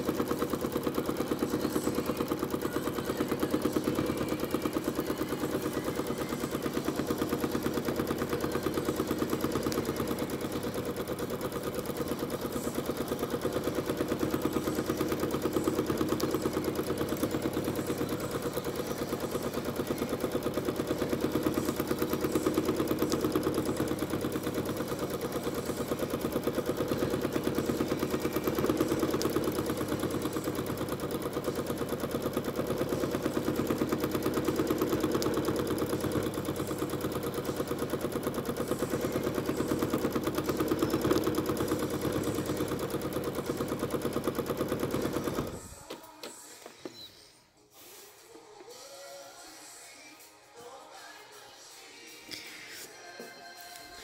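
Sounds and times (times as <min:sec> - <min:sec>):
sewing machine stitching: 0:00.0 - 0:47.1.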